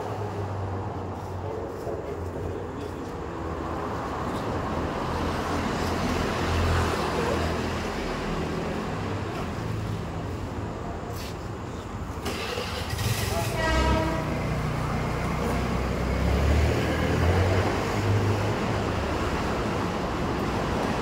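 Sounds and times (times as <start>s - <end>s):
road traffic hum: 0.0s - 21.0s
vehicle passing close: 14.2s - 21.0s.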